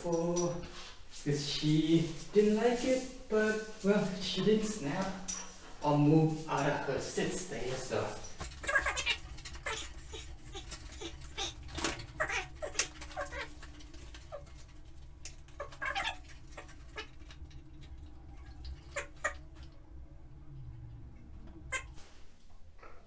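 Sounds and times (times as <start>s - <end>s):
squeaky chirps: 8.2s - 14.6s.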